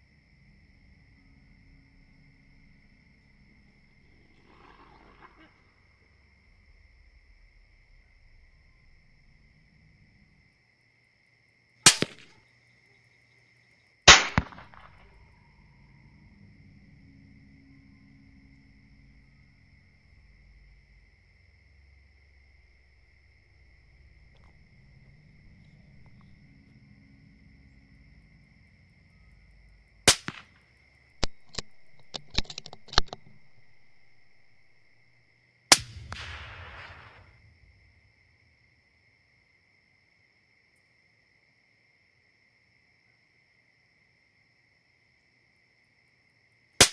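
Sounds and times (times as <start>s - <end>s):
faint high-pitched whine: 0.0s - 46.9s
insect chirring: 0.0s - 46.9s
sharp crack: 11.8s - 12.4s, 14.1s - 15.3s, 30.0s - 30.6s, 31.2s - 34.6s, 35.7s - 38.1s
rifle shots: 11.9s - 12.4s, 14.1s - 15.0s, 30.1s - 30.5s, 35.7s - 37.4s
sharp metallic clicks: 30.1s - 30.5s, 31.2s - 34.2s, 35.7s - 37.2s.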